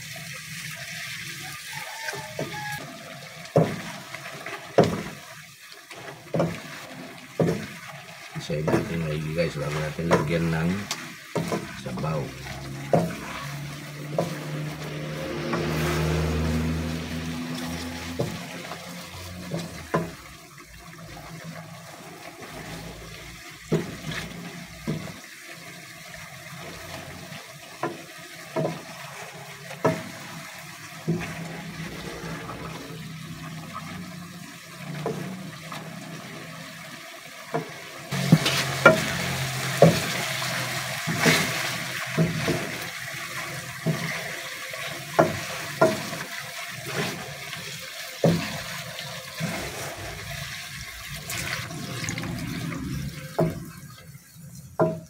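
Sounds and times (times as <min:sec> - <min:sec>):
spatula knocking pot: 0:10.1 - 0:11.8, 0:12.6 - 0:14.5
bubbling liquid hiss: 0:37.8 - 0:55.0.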